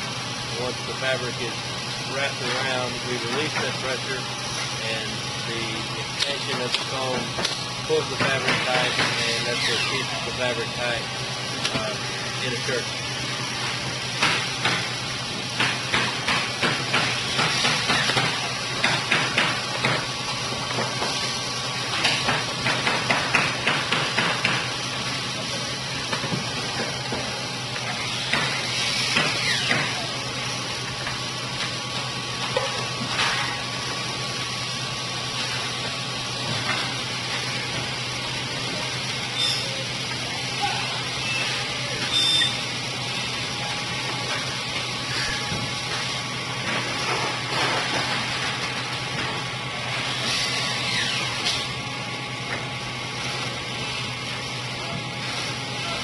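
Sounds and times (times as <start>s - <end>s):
machinery hum and hiss: 0.0s - 56.0s
short falling squeal: 41.3s - 42.6s.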